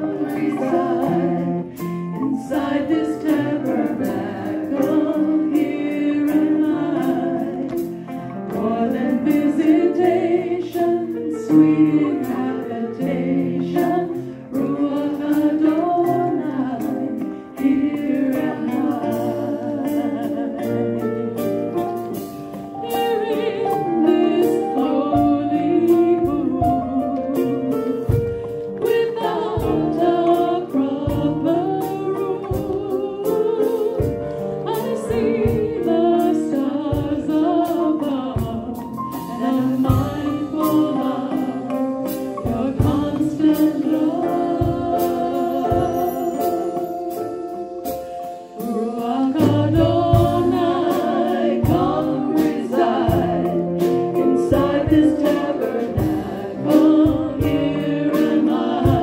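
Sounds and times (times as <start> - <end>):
worship band with singers and piano: 0.0 - 59.0.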